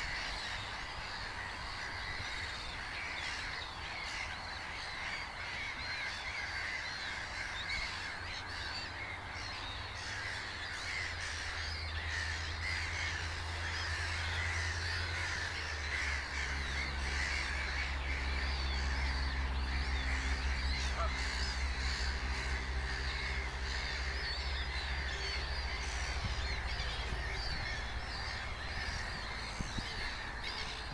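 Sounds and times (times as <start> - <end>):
gulls calling: 0.0 - 30.9.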